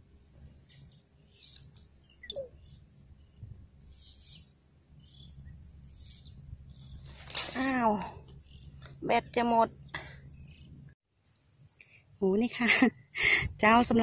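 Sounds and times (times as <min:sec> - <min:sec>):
outdoor background noise: 0:00.0 - 0:14.0
bird chirps: 0:00.6 - 0:07.3, 0:08.2 - 0:10.9.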